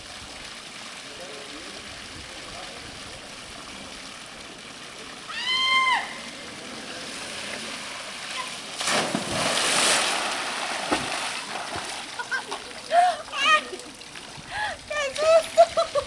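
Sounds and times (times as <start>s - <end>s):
water rushing down slide: 5.3s - 16.0s
person splashing into pool: 8.3s - 12.7s.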